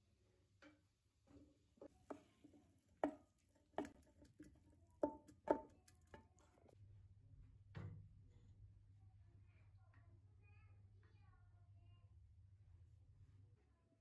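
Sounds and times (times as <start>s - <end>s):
wooden spatula knocking on pan: 3.0s - 6.3s.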